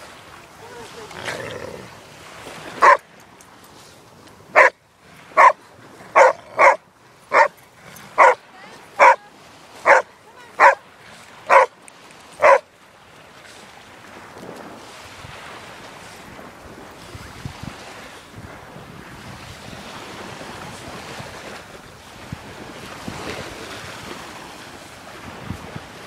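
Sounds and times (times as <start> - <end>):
dog barking: 2.8 - 3.0, 4.6 - 4.8, 5.4 - 5.6, 6.2 - 7.6, 8.2 - 8.4, 9.0 - 9.2, 9.8 - 10.8, 11.5 - 11.7, 12.4 - 12.6.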